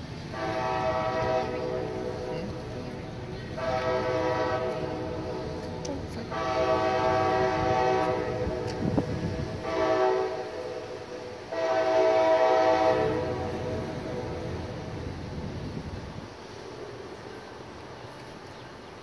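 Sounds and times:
train air horn blasts: 0.3 - 14.9.

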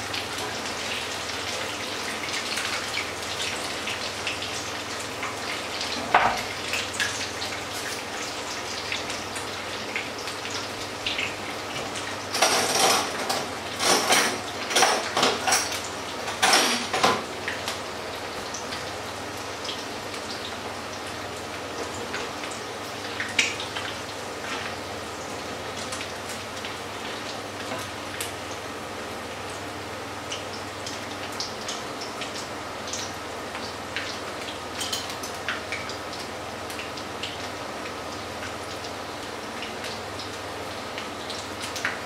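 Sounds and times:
oil sizzling and crackling: 0.0 - 42.0
kitchen utensils and dishes clattering: 6.0 - 6.5, 11.8 - 17.3, 34.8 - 35.2.

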